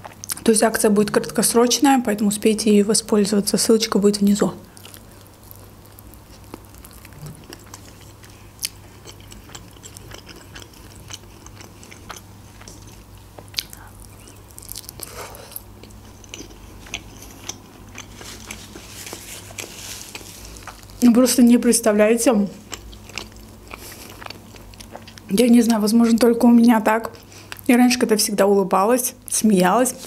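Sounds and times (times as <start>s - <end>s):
faint low hum: 0.0s - 30.0s
biting and chewing: 4.8s - 21.0s, 22.6s - 25.3s.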